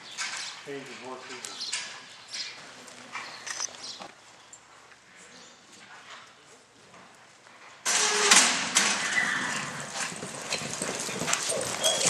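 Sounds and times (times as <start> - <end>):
horse hoofbeats on dirt: 9.4 - 12.0.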